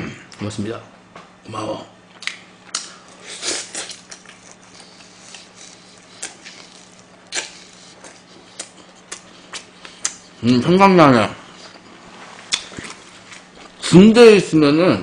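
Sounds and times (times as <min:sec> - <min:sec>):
wet chewing and smacking: 0:02.1 - 0:10.5, 0:11.4 - 0:13.8.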